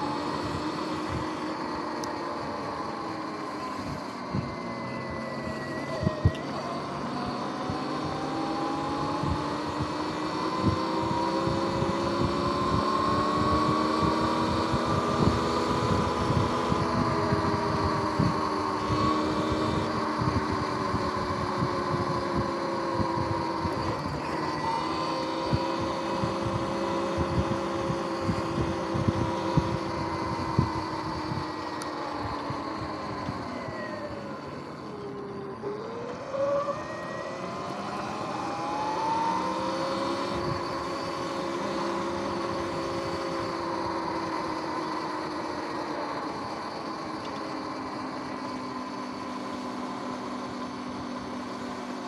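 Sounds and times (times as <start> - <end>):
electric motor whining: 0.0 - 52.0
wind buffeting microphone: 8.9 - 33.9.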